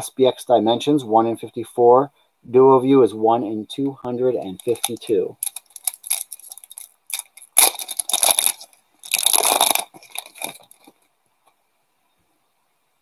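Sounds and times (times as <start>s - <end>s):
foil wrapper crinkling and tearing: 4.5s - 11.0s.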